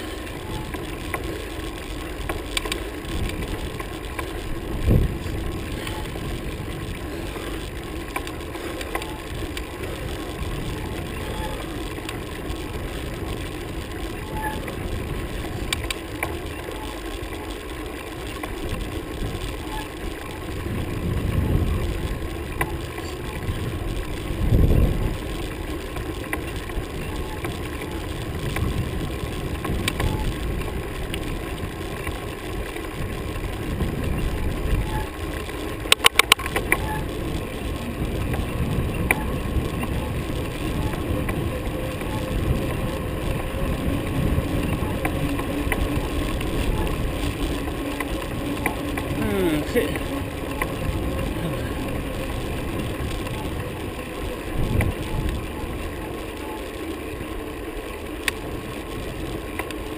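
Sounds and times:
bicycle rolling on asphalt: 0.0s - 59.9s
sharp clicks: 0.2s - 20.4s, 29.5s - 43.4s
wind rushing over microphone: 4.4s - 15.9s, 20.4s - 25.7s, 32.9s - 35.4s, 36.4s - 56.0s.

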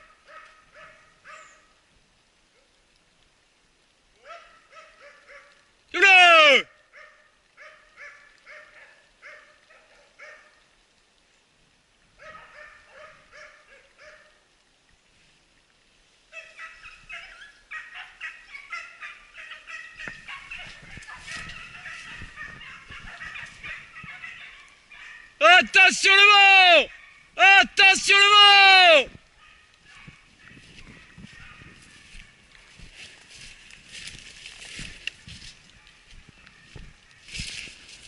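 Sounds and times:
faint hounds baying: 0.0s - 1.7s, 4.2s - 5.7s, 6.7s - 10.7s, 12.2s - 14.5s, 16.3s - 25.4s, 26.8s - 27.4s, 29.3s - 34.1s.

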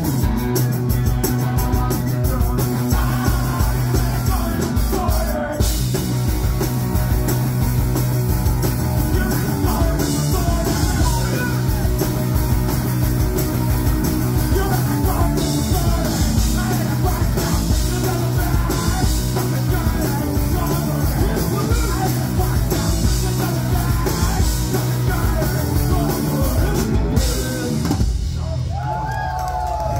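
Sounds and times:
bass guitar: 0.0s - 29.9s
drums: 0.0s - 29.9s
electric guitars: 0.0s - 29.9s
person singing: 0.2s - 5.8s, 8.9s - 12.4s, 14.3s - 28.0s.

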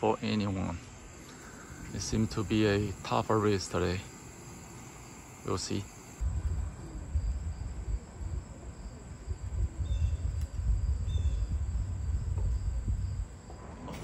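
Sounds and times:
faint insect trill: 0.0s - 14.0s
wind buffeting microphone: 6.2s - 14.0s.

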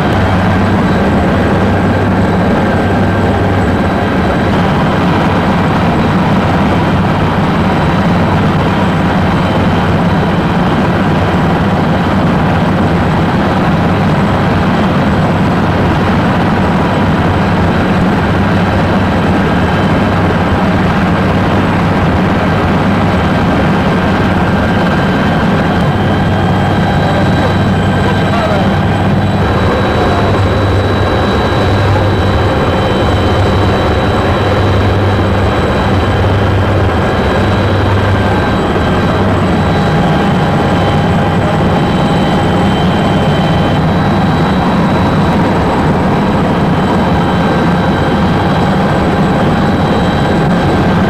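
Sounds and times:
helicopter engine and rotor drone: 0.0s - 51.0s
thin high whine: 23.0s - 51.0s.

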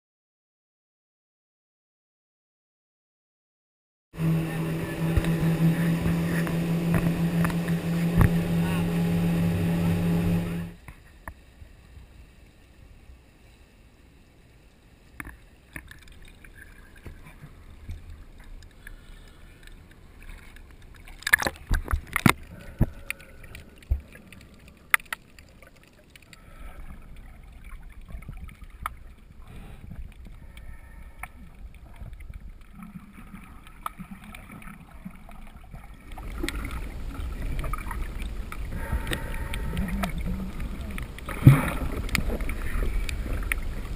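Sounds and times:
rumbling of moving water: 4.2s - 43.9s
faint underwater hiss: 22.1s - 43.9s.

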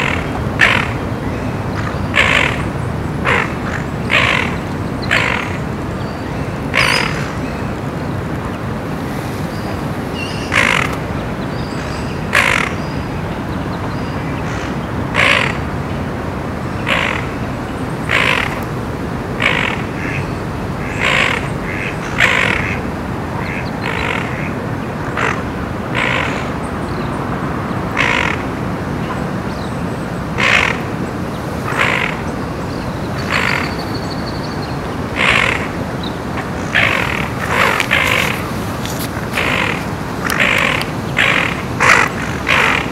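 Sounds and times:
harsh bird calls: 0.0s - 7.7s, 9.4s - 13.2s, 29.5s - 42.9s.

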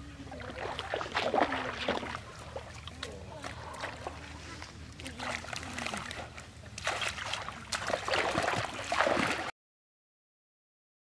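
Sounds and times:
faint voices murmuring: 0.0s - 8.0s
water splashing and trickling: 0.1s - 9.5s.

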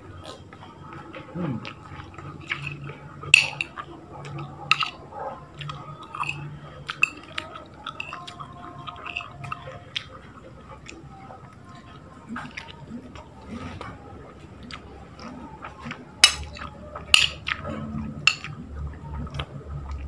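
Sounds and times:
mouth chewing: 0.0s - 20.0s
spoon clinking on glass plate: 3.4s - 3.8s, 4.7s - 5.0s, 6.0s - 8.4s, 17.1s - 17.4s, 18.3s - 18.5s.

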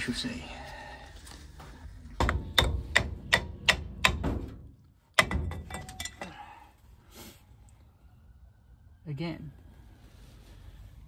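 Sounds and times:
sharp metal knocks: 2.2s - 6.4s.

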